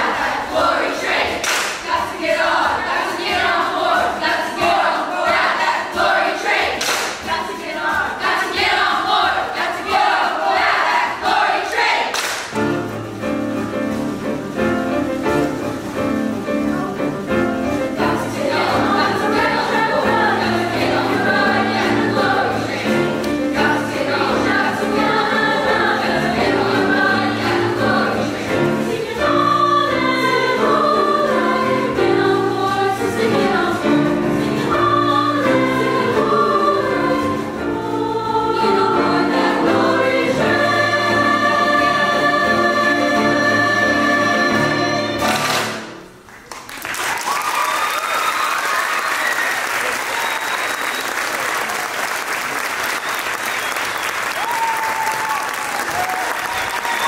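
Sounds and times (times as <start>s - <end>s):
girls choir singing: 0.0s - 12.9s, 13.9s - 46.0s
piano accompaniment: 0.0s - 46.3s.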